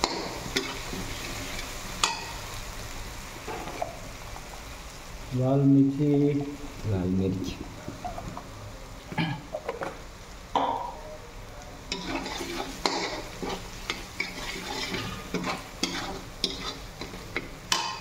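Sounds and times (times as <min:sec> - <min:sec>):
spoon scraping a pan: 0:00.0 - 0:02.4, 0:11.9 - 0:18.0
spices sizzling in a pan: 0:00.0 - 0:18.0.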